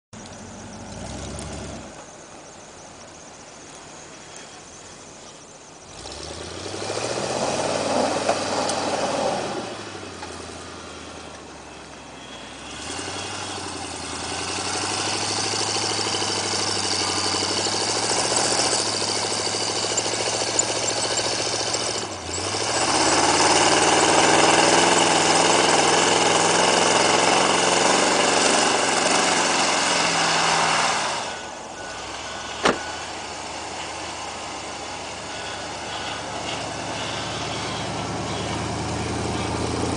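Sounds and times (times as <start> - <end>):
pickup engine revving hard: 5.9 - 10.1, 12.5 - 39.9.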